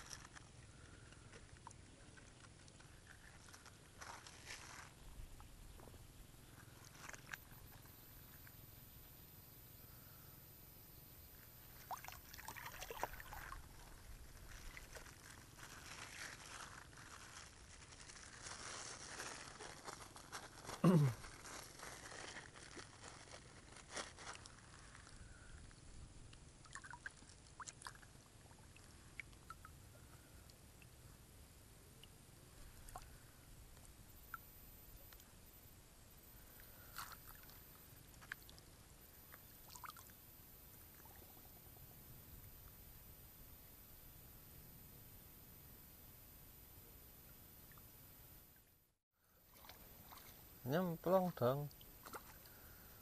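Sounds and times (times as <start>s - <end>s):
plastic bag crinkling: 0.0s - 0.4s, 3.1s - 4.9s, 13.3s - 25.2s
faint water splashes and drips: 0.0s - 8.6s, 11.3s - 20.8s, 21.4s - 31.1s, 31.9s - 35.4s, 36.4s - 42.8s, 49.3s - 53.0s.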